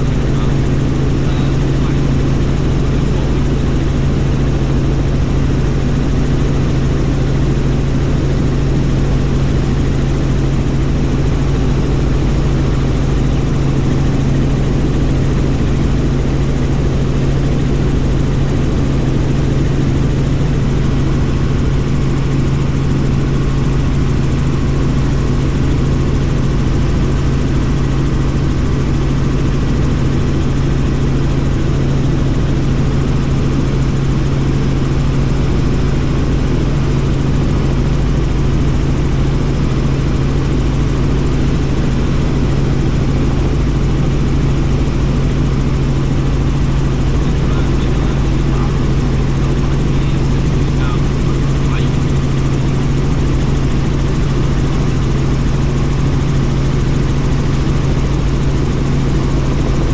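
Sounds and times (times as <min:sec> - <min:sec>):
helicopter engine and rotor drone: 0:00.0 - 0:59.9.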